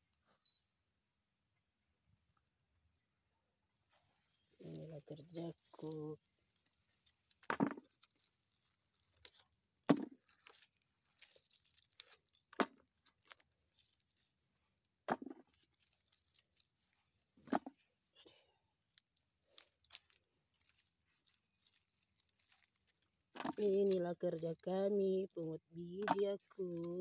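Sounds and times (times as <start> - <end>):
dry fronds crackling: 4.6 - 14.1, 19.4 - 24.8
fruits thudding into plastic bucket: 7.5 - 7.9, 9.9 - 10.2, 15.1 - 15.5.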